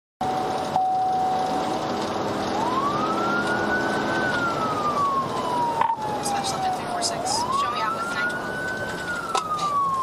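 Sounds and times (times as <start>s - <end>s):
police siren wailing: 0.2s - 10.0s
road and engine noise: 0.2s - 10.0s.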